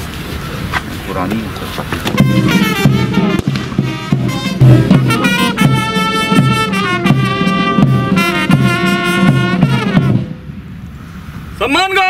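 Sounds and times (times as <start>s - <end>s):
brass band playing: 2.1s - 10.6s.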